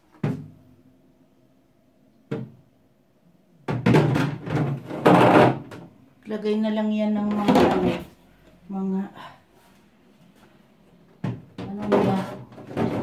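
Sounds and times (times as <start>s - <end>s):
plastic drawer scraping: 11.8s - 13.0s.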